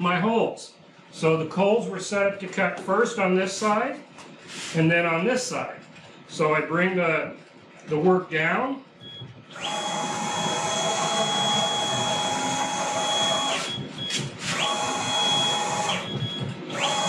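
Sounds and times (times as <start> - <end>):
router motor whine gliding in pitch: 9.5 - 13.8, 14.4 - 17.0.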